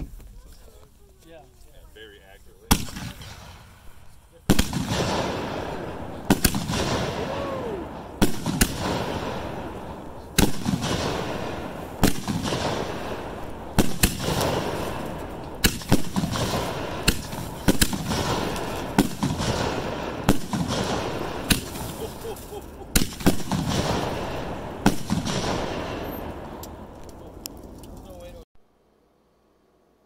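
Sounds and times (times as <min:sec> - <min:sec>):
firework shell bangs: 0:10.4 - 0:26.3.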